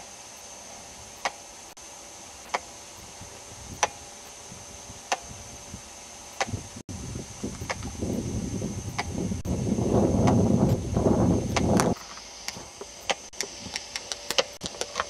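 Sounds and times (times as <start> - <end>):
steady hiss: 0.0 - 15.0
thin high whine: 0.0 - 15.0
sharp clicks: 1.2 - 1.4, 2.5 - 3.1, 7.5 - 8.2, 8.9 - 9.2, 11.5 - 15.0.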